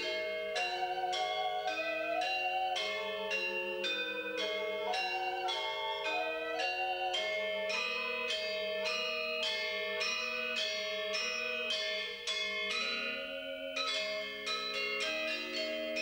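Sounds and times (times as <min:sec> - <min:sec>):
bamboo flute: 0:00.0 - 0:12.1
metallophones playing melody: 0:00.0 - 0:16.0.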